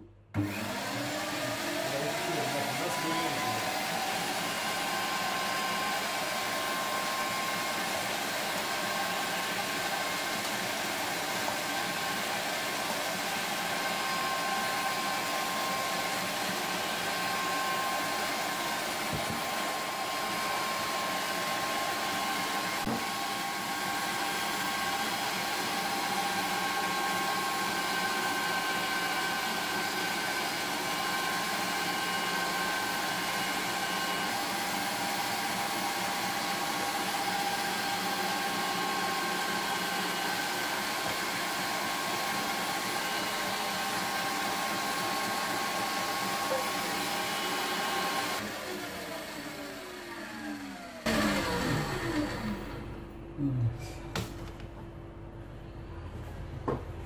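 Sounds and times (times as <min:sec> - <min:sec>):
electric meat grinder whining: 0:00.4 - 0:53.1.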